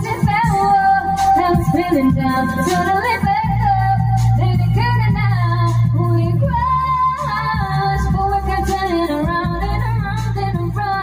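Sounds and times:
backing track with bass line: 0:00.0 - 0:11.0
woman singing karaoke: 0:00.0 - 0:11.0.

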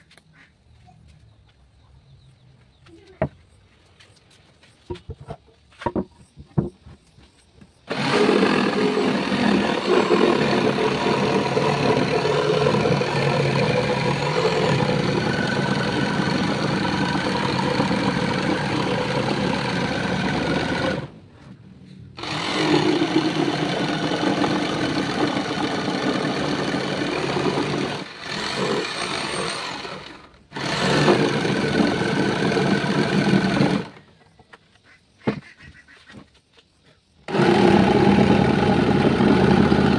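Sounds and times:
jigsaw sawing wood: 0:07.9 - 0:21.1, 0:22.2 - 0:34.0, 0:37.3 - 0:39.9.

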